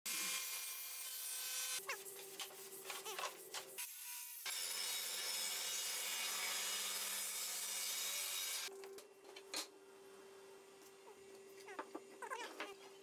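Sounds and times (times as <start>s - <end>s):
table saw cutting wood: 0.1s - 2.0s, 2.9s - 8.7s.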